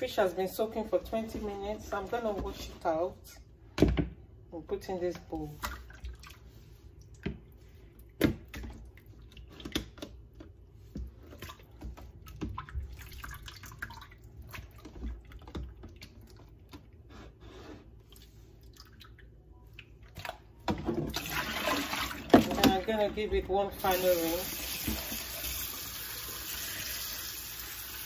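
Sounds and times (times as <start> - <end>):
water splashing and dripping: 11.3 - 16.6.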